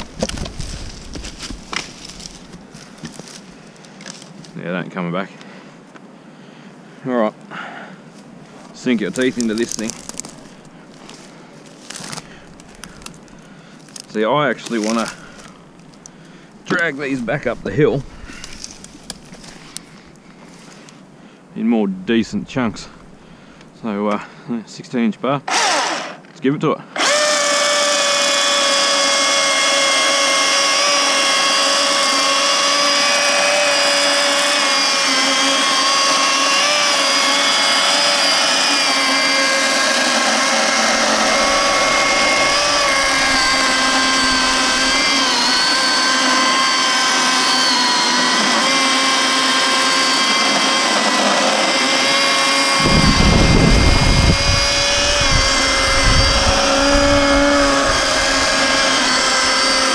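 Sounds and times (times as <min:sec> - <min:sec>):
electric chainsaw cutting log: 0:00.0 - 0:03.4, 0:09.0 - 0:19.9, 0:25.4 - 0:26.3, 0:27.0 - 0:59.9
rough low rumble: 0:40.7 - 0:46.1.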